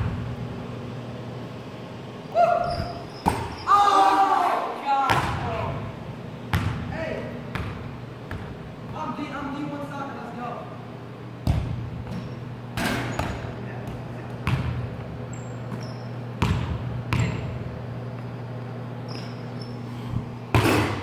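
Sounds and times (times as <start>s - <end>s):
steady low hum: 0.0s - 21.0s
basketball thudding on wooden floor: 11.4s - 12.2s.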